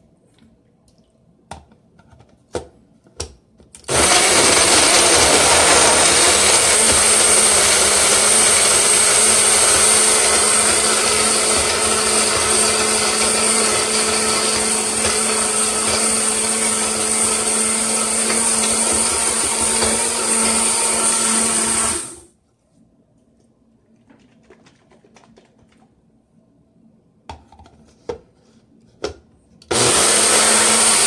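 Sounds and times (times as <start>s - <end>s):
blender running: 3.9s - 22.3s, 29.7s - 31.0s.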